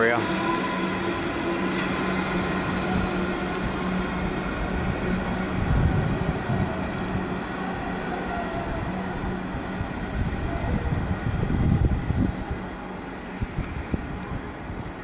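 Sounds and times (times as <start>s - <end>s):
electric train rumbling on rails: 0.0s - 15.0s.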